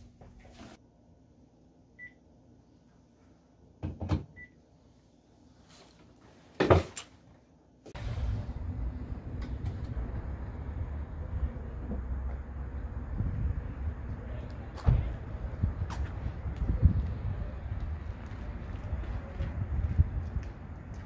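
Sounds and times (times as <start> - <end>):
steady low rumbling: 8.0 - 21.0.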